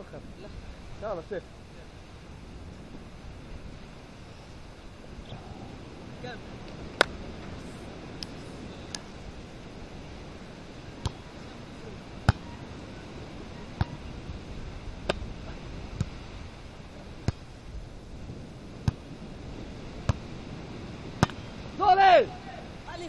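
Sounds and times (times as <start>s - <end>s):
steady background hiss: 0.0s - 23.0s.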